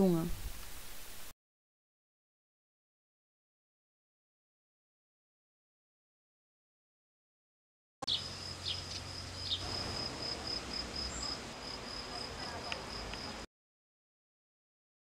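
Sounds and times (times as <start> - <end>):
faint clicks: 12.7 - 13.3.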